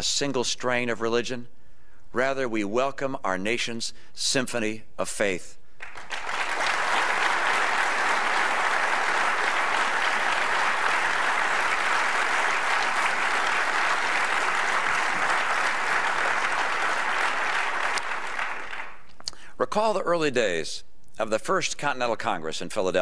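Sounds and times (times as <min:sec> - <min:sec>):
audience applauding: 0:05.8 - 0:19.1.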